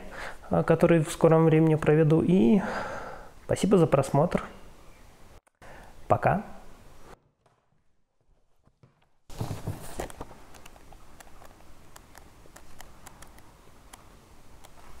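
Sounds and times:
room noise: 3.3 - 15.0.

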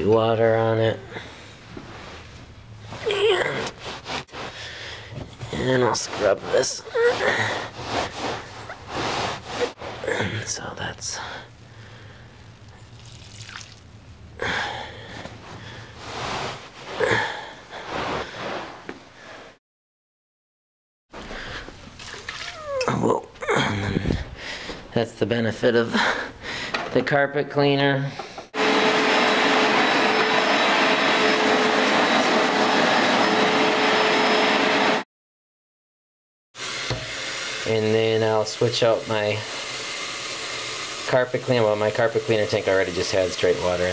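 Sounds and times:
scrubbing wet carpet: 3.0 - 4.7, 5.5 - 10.1, 16.0 - 17.0
carpet cleaner running: 28.6 - 35.0, 36.6 - 43.9.

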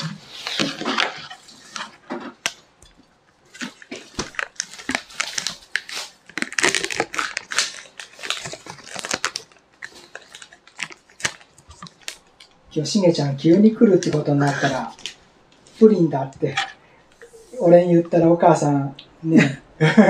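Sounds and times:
plastic lids crackling: 3.5 - 12.6.

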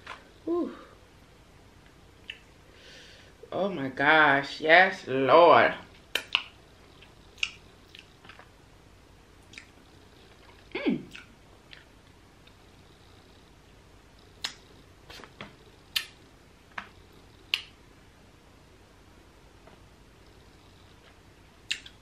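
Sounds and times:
person humming mm: 0.4 - 1.0, 10.7 - 11.2
lip smacks and sucking clicks: 2.2 - 2.5, 6.1 - 8.5, 9.4 - 12.6, 14.2 - 16.2, 16.8 - 17.8, 21.0 - 22.0.

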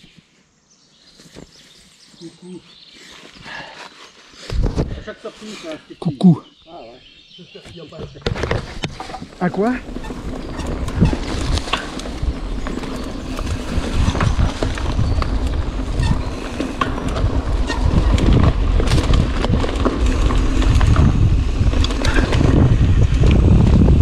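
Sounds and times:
wind rumbling on microphone: 4.5 - 5.2, 8.0 - 24.0
bike rattling clicks and knocks: 8.0 - 24.0.

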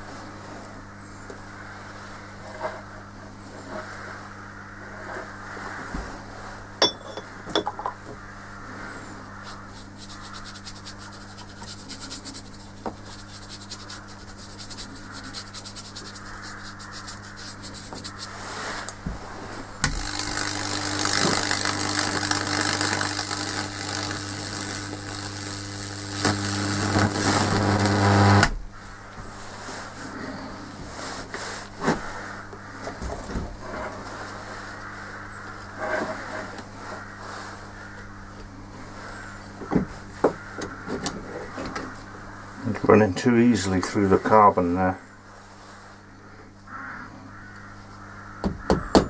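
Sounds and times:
electric arc crackling and sizzling: 9.5 - 18.4, 19.8 - 28.7
transformer humming: 19.8 - 28.7.

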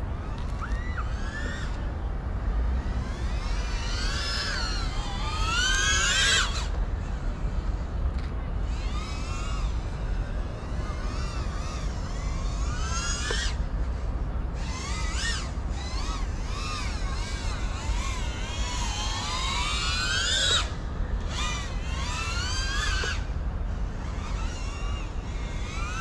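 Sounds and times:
steady low rumble: 0.0 - 13.0
quadcopter motors whining: 0.0 - 26.0.

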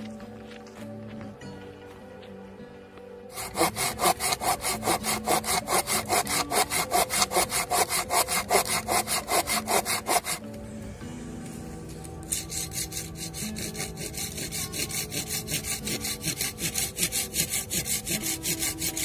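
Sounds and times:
hand saw cutting wood: 3.3 - 10.4, 12.2 - 19.0.

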